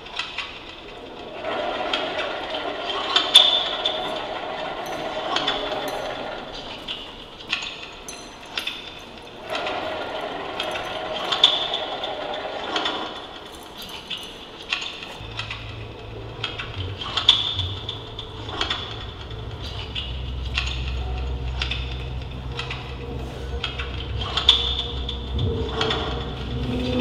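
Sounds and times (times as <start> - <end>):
low steady hum: 0.8 - 27.0
metallic clinks and rattles: 2.9 - 27.0
faint high ringing: 4.0 - 12.0.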